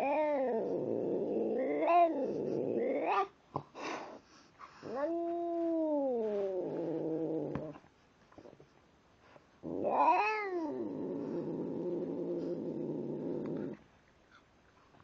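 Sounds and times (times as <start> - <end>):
cat yowling: 9.8 - 10.8.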